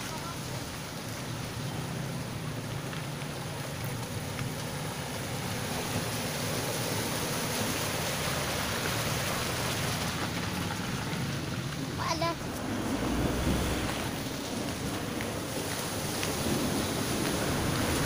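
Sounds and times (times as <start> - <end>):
water sloshing around tyres: 0.0 - 18.0.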